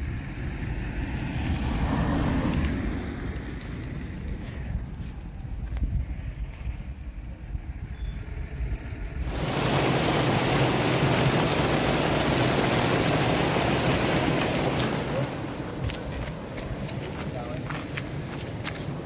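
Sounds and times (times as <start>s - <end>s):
water rushing over a weir: 9.2s - 19.0s.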